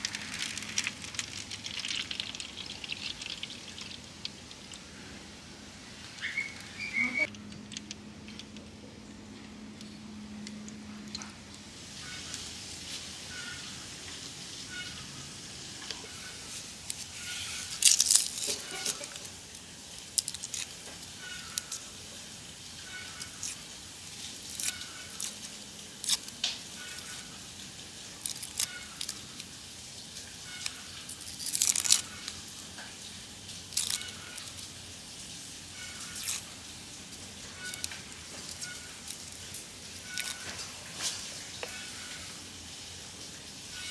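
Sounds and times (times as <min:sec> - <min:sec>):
onion skins crackling and tearing: 0:00.0 - 0:08.6, 0:15.6 - 0:43.9.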